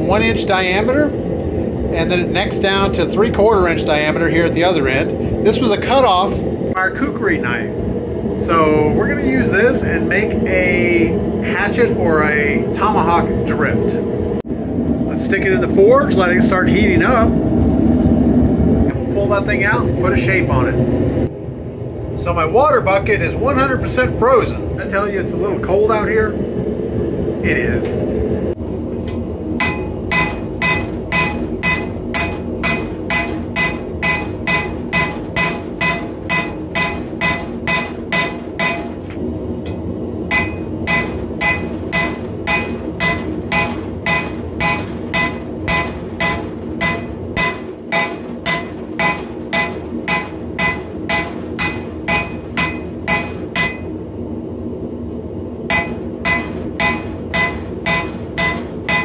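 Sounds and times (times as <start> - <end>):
steady low hum: 0.0 - 59.0
hammer ringing on anvil: 29.6 - 39.0, 39.7 - 53.9, 55.7 - 59.0.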